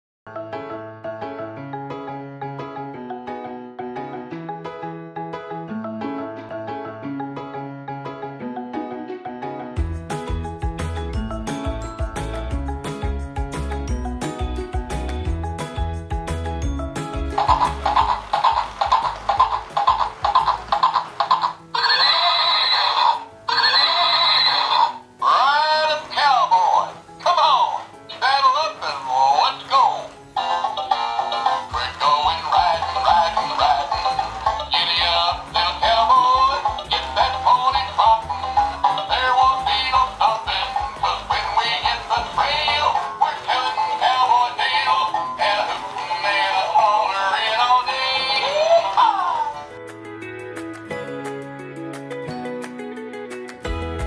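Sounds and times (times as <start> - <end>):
upbeat electronic children's music: 0.4 - 54.0
cheerful song with synthetic singing: 5.6 - 54.0
recorded horse neigh: 17.4 - 25.6.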